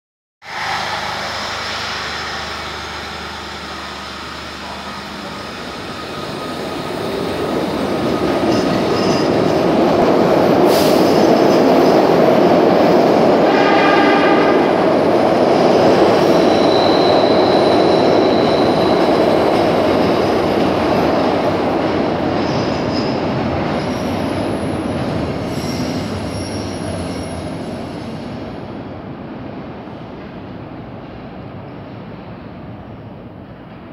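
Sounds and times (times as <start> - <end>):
subway train running past: 0.4 - 33.9
train horn tone: 13.4 - 14.8.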